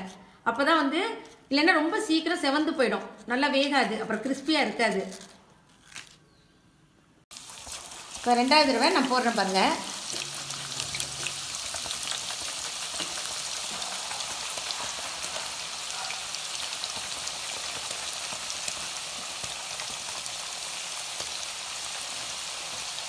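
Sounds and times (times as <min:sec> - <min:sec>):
plantain slices sizzling in oil: 0:07.3 - 0:23.0.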